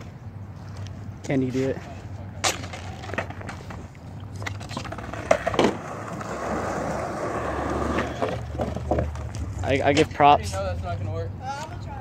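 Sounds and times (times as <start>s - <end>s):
skateboard wheels rolling on concrete: 0.0s - 12.0s
skateboard knocks: 4.7s - 9.4s.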